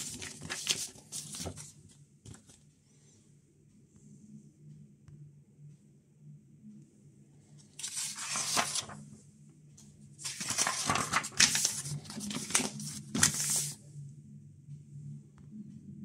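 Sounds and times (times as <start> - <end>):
paper pages rustling: 0.0 - 2.6, 7.8 - 9.0, 10.2 - 13.8.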